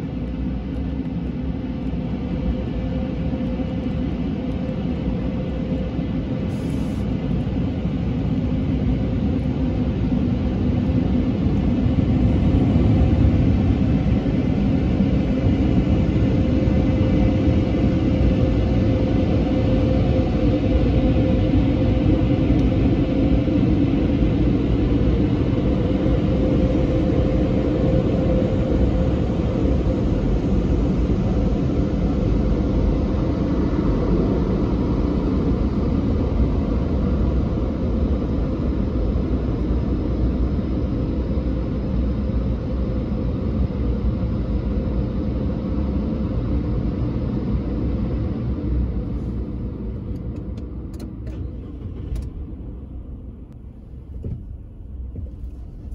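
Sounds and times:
car wash machine rumble: 0:49.0 - 0:55.9.

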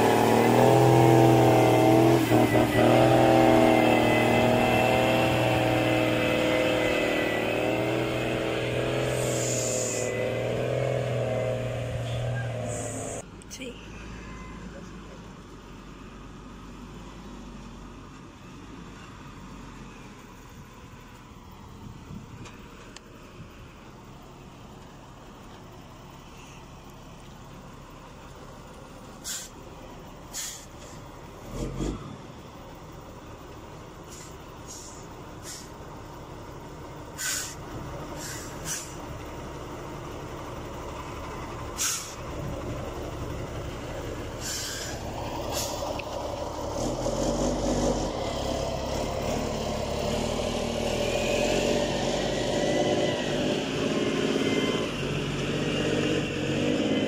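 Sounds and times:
diesel truck engine running: 0:00.0 - 0:57.0
air brake hisses: 0:09.0 - 0:10.2, 0:29.2 - 0:29.6, 0:30.3 - 0:31.0, 0:34.1 - 0:35.7, 0:37.2 - 0:37.6, 0:38.2 - 0:39.0, 0:41.8 - 0:42.2, 0:44.4 - 0:45.9.

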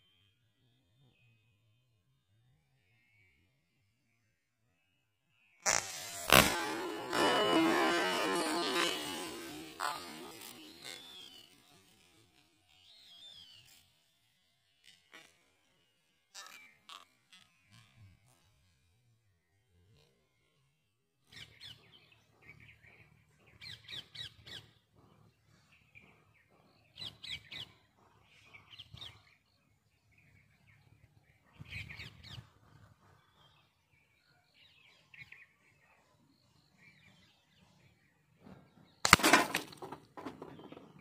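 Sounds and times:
small birds chirping: 0:05.6 - 0:18.5, 0:21.2 - 0:41.0
air pistol shot: 0:39.1 - 0:39.9
pellet striking plastic bottle: 0:39.1 - 0:40.6.

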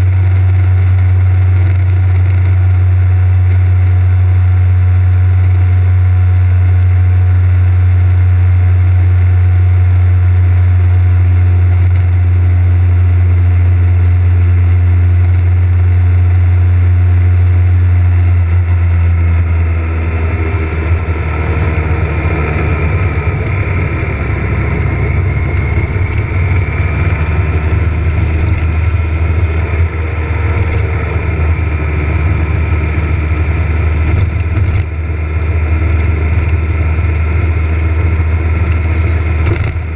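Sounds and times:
motorcycle engine drone: 0:00.0 - 0:39.9
wind noise: 0:18.4 - 0:39.9.

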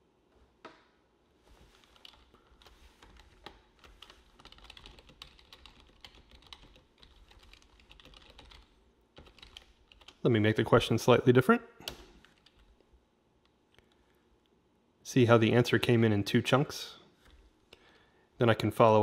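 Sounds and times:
typing on a computer keyboard: 0:01.8 - 0:10.2, 0:11.9 - 0:12.8.

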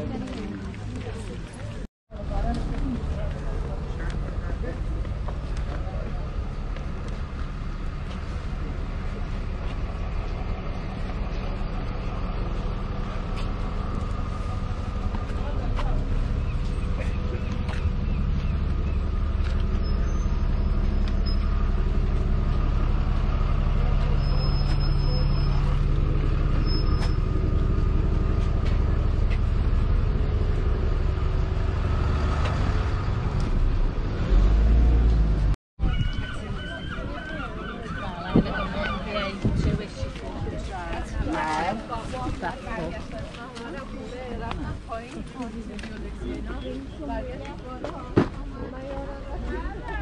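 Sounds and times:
low rumble of road traffic: 0:00.0 - 0:50.0
wind buffeting microphone: 0:35.8 - 0:43.4.

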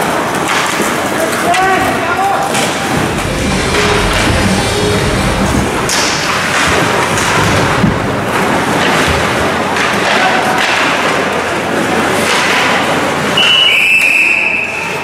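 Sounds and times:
puck and sticks hitting boards: 0:00.0 - 0:01.9, 0:08.8 - 0:11.5, 0:12.2 - 0:13.1
crowd and hall noise: 0:00.0 - 0:15.0.

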